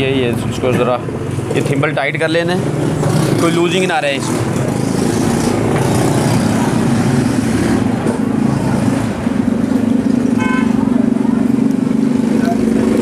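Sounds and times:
vehicle engine running: 0.0 - 13.0
horn toot: 10.3 - 10.8.

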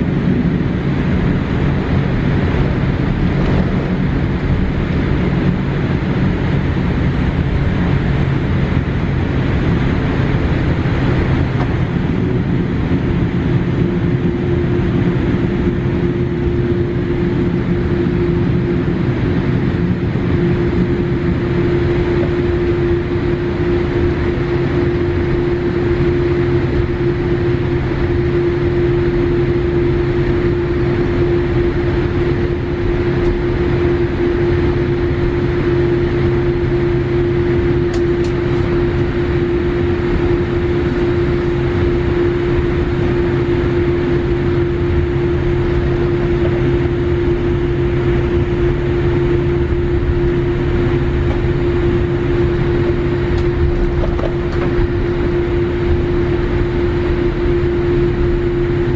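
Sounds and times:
cabin hum: 0.0 - 58.9
jet engines idling: 0.0 - 58.9.

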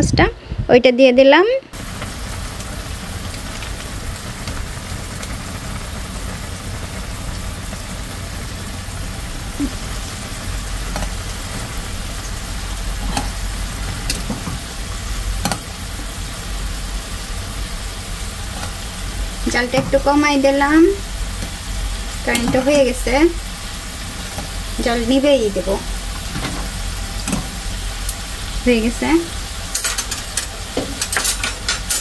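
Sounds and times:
pot boiling: 1.7 - 32.0
sauce sizzling in frying pan: 1.7 - 32.0
utensil clicking against pans: 10.9 - 11.2, 13.0 - 14.6, 15.4 - 15.8, 22.2 - 23.0, 26.2 - 28.2, 29.7 - 32.0.

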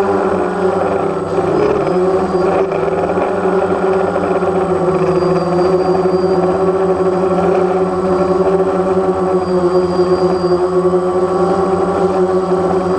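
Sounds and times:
drone propellers buzzing: 0.0 - 12.9.

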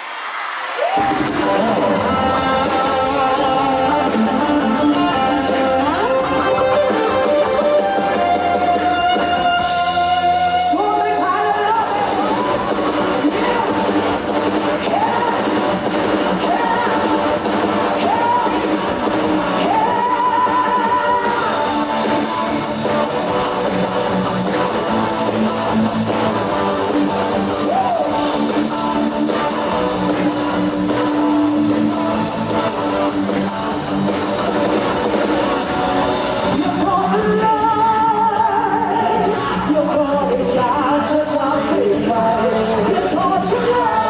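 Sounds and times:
drums: 0.0 - 44.0
electric guitars: 0.0 - 44.0
woman singing: 16.4 - 17.4, 18.0 - 18.8, 19.6 - 21.7, 36.5 - 44.0.

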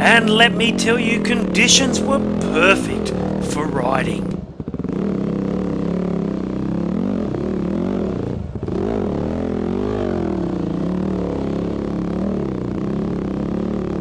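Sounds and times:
dirt bike engine revving: 0.0 - 10.2.

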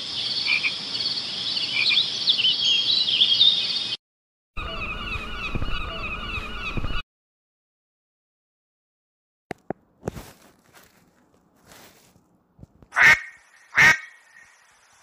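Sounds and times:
birds chirping: 0.0 - 4.0, 4.6 - 7.0
low wavering bird calls: 4.6 - 7.0.

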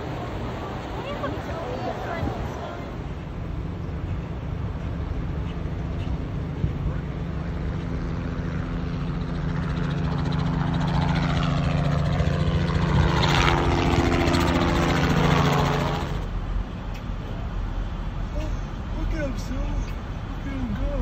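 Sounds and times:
helicopter flying past: 0.0 - 16.5.

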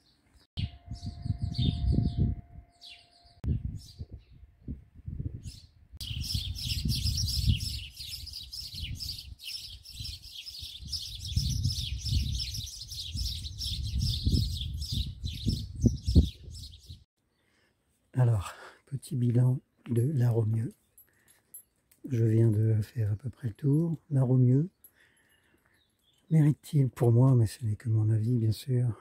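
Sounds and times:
small birds chirping: 5.4 - 17.7, 19.6 - 26.6.

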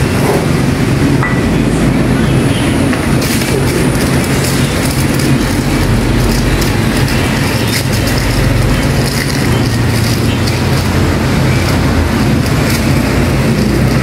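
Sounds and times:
loud mechanical rumble: 0.0 - 14.0
plastic wrap crackling: 3.0 - 14.0.

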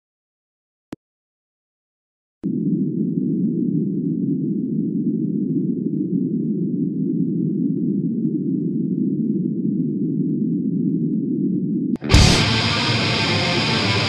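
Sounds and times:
dark ambient low rumble: 10.8 - 14.0.

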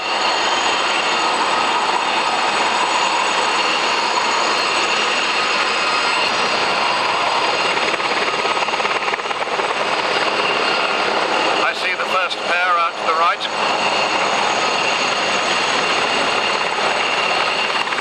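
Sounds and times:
helicopters flying past: 0.0 - 18.0.

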